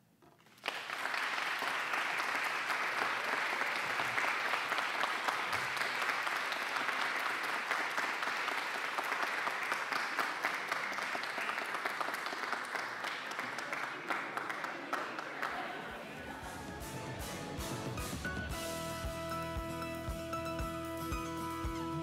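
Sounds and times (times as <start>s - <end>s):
audience applauding: 0.4s - 22.0s.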